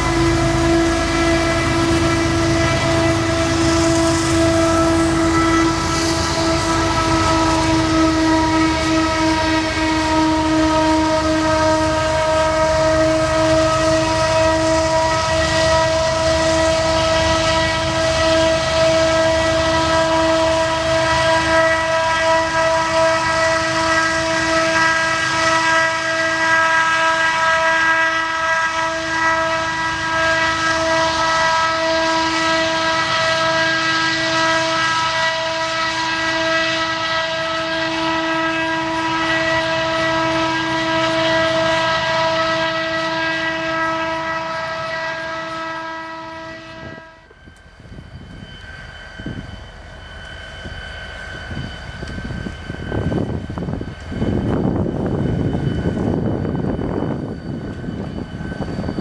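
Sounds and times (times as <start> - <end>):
high-pitched whine: 0.0 - 26.1, 29.4 - 59.0
freight train rumbling: 0.0 - 59.0.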